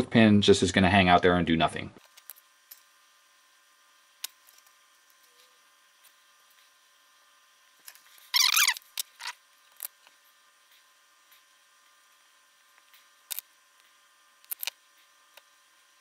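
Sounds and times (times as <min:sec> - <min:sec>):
short squeaks: 0:08.2 - 0:09.4
squeaky scrape: 0:08.2 - 0:09.4.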